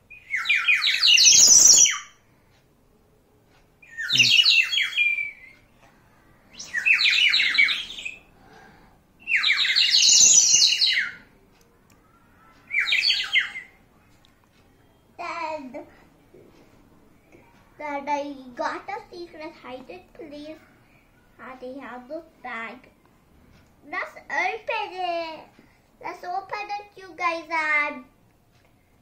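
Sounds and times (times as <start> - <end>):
bird whistle warbling trill: 0.2 - 2.1, 3.9 - 5.6, 6.5 - 8.2, 9.3 - 11.2.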